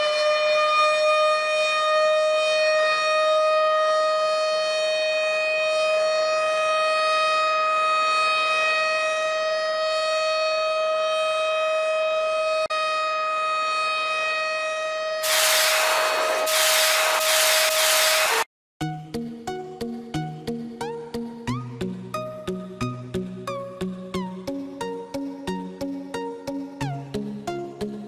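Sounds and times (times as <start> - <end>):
air-raid siren: 0.0 - 18.5
loud hiss: 15.2 - 18.5.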